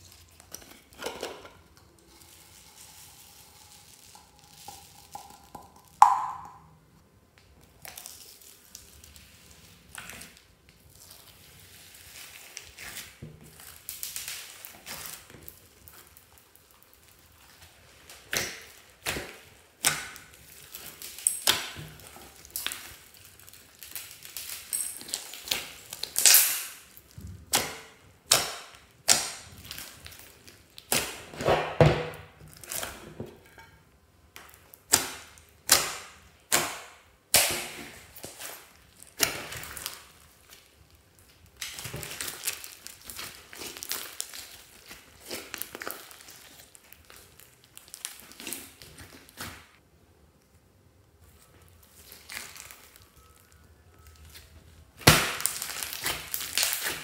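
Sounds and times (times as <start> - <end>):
slime squishing with wet clicks: 4.1 - 31.3, 34.3 - 49.5, 50.4 - 57.0
slime small crackles: 37.3 - 49.6, 51.2 - 57.0.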